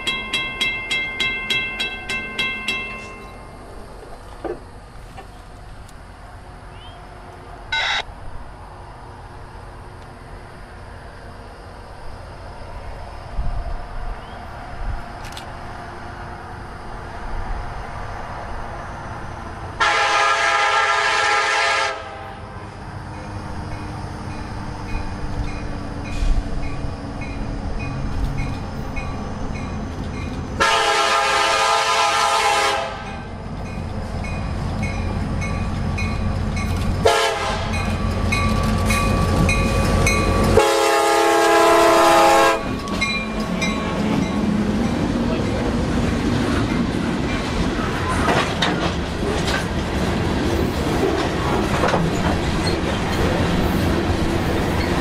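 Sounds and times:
diesel locomotive engines rumbling: 0:00.0 - 0:55.0
train wheels on rails: 0:00.0 - 0:55.0
train air horn blowing: 0:19.8 - 0:22.4, 0:30.6 - 0:33.3, 0:37.0 - 0:37.8, 0:40.5 - 0:42.8.

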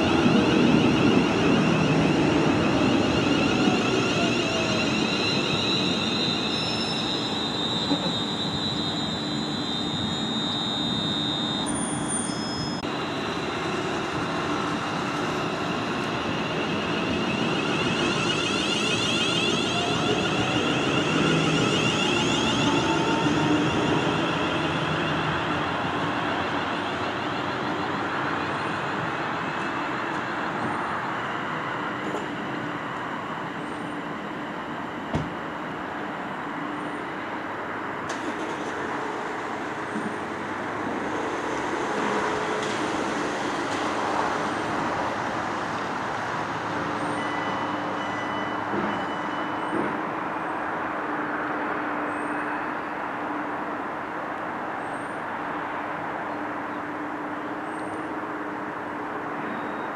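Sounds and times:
electric train motor whine: 0:00.0 - 0:29.2.

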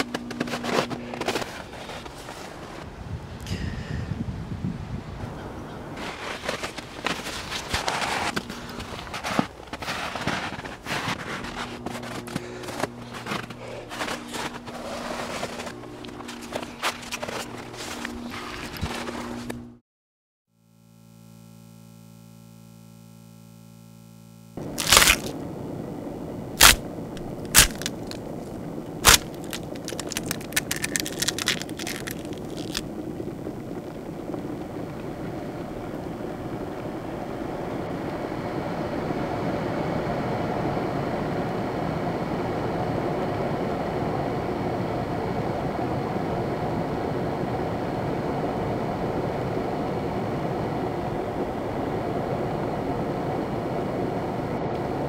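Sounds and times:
small crackles: 0:00.0 - 0:02.9, 0:06.0 - 0:19.8, 0:21.1 - 0:25.5, 0:26.5 - 0:38.2
low even drone: 0:05.2 - 0:19.8
sharp cracks: 0:24.6 - 0:25.4, 0:26.6 - 0:33.0.

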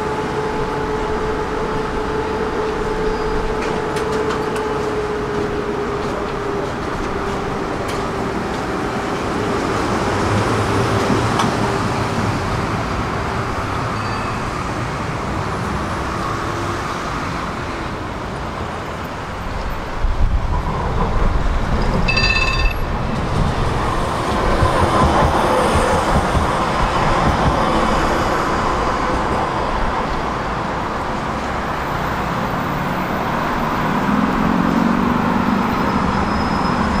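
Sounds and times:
tram wheels rumbling on rails: 0:00.0 - 0:37.0
ringing signal: 0:22.1 - 0:22.9.

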